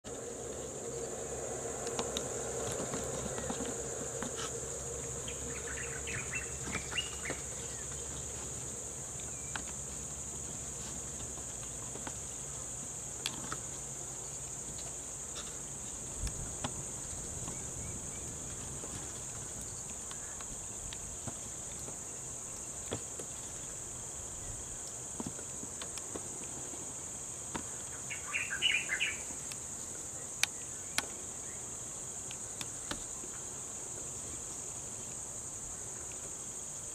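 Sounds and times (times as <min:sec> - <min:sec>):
high-pitched insect drone: 0:00.1 - 0:07.9
chirping: 0:28.1 - 0:29.3.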